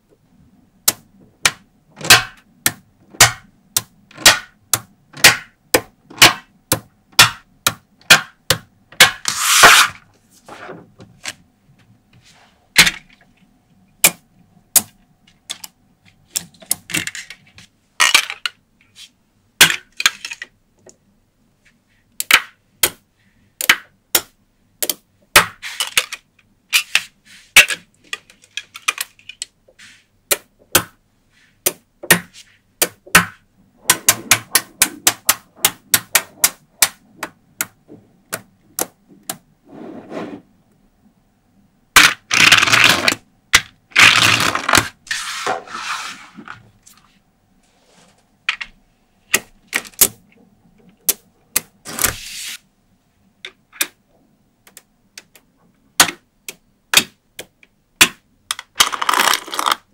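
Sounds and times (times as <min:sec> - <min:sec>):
scraping rustles: 0:45.0 - 0:48.3.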